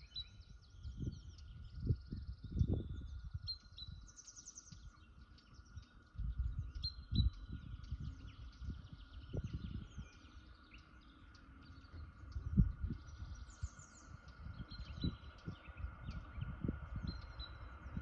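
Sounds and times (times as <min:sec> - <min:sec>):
faint high hum: 0:00.0 - 0:18.0
small birds chirping: 0:00.0 - 0:18.0
wind buffeting microphone: 0:00.0 - 0:18.0.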